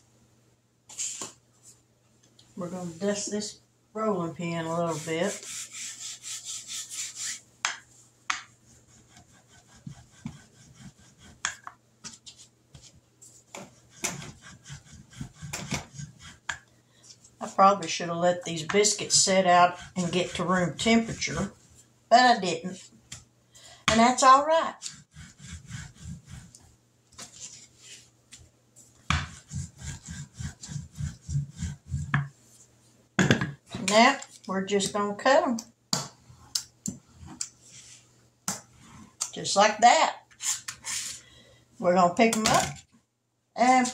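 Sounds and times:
rolling pin rubbing: 4.4 - 7.4, 8.6 - 16.6, 18.6 - 21.6, 24.8 - 26.7, 29.0 - 32.3
rolling pin scraping and knocking: 13.5 - 16.6.

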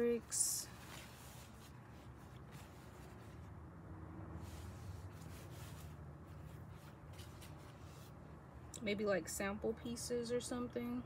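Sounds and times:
fabric rustling and rubbing: 0.0 - 8.5.

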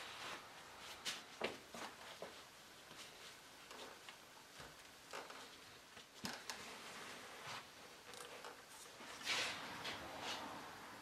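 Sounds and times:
faint fabric rustles: 5.2 - 10.6.

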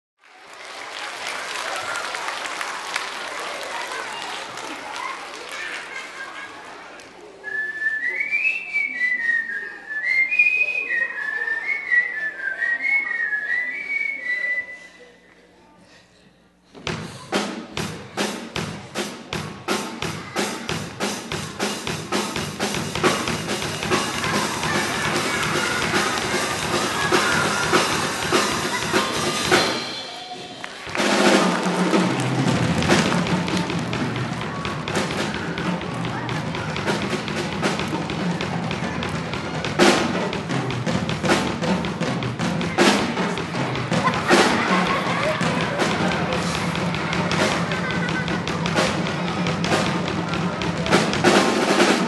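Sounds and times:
person whistling a tune: 7.4 - 15.1
music with drum beat: 16.9 - 52.0.

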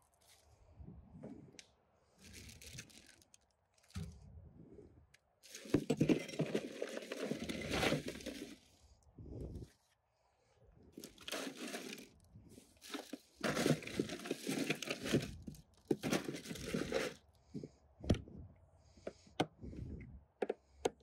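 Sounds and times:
material crinkling and tearing: 2.2 - 4.0, 11.0 - 12.2, 12.8 - 17.2.

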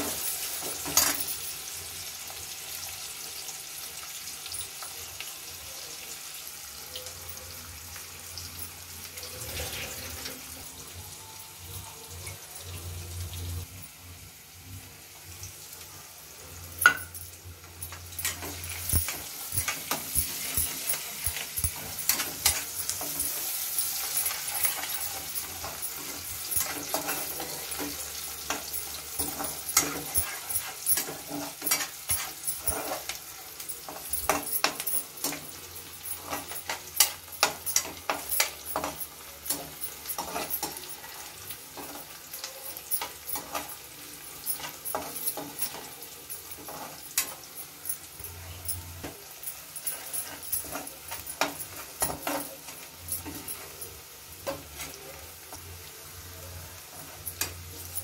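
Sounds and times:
vegetables sizzling in hot oil: 0.0 - 58.0
spatula scraping a metal pan: 9.2 - 10.6, 17.9 - 48.1, 49.0 - 53.8.

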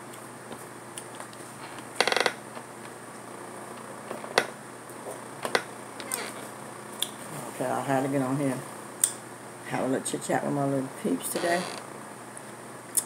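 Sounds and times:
ratcheting creak: 2.0 - 2.4.

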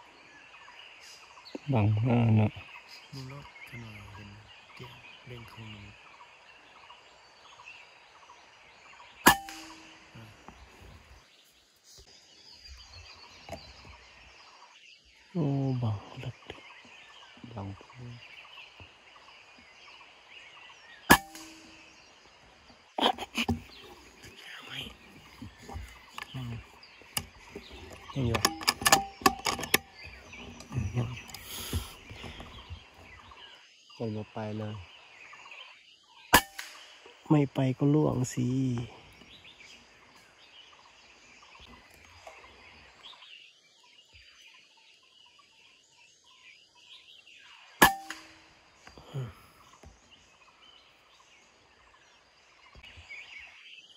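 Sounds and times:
faint bird calls: 0.0 - 53.9
air rifle shot: 9.3 - 10.0, 21.1 - 21.8, 36.4 - 37.0
rifle knocking and rustling: 27.0 - 33.1.

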